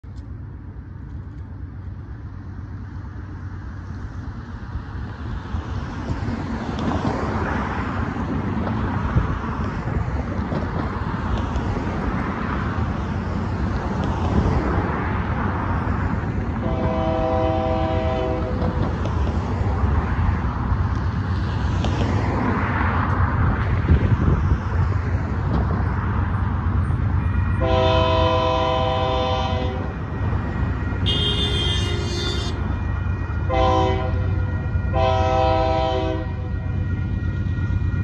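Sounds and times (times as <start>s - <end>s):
cars driving: 0.2s - 38.0s
locomotive air horn: 16.6s - 18.8s, 27.2s - 38.0s.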